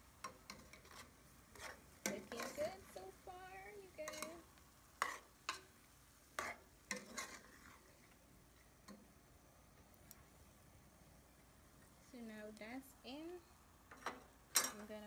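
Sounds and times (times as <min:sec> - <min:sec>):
metal spoon scraping a pot: 0:00.2 - 0:03.1, 0:04.0 - 0:04.4, 0:05.0 - 0:05.7, 0:06.4 - 0:08.1
spoon tapping a pot: 0:04.1 - 0:04.4.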